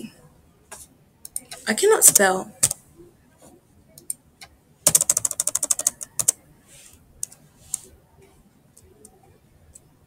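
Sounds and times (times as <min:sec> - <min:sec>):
computer keyboard clicks: 0:04.9 - 0:06.4.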